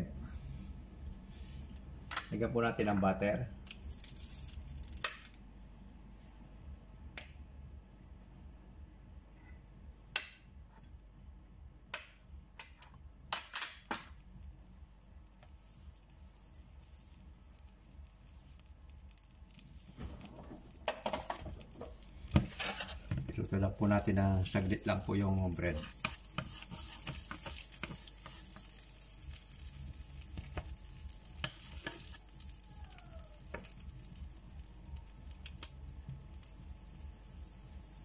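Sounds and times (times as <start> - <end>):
butter sizzling faintly: 14.0 - 38.0
butter lumps clicking in pan: 24.9 - 32.7, 33.4 - 36.6.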